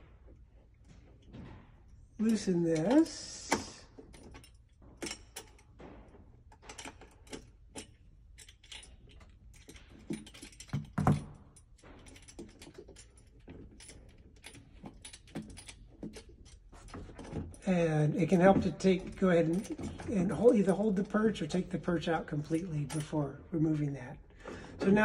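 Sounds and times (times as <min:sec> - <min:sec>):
small metal clicks and rattles: 0:02.2 - 0:17.7, 0:18.3 - 0:23.2.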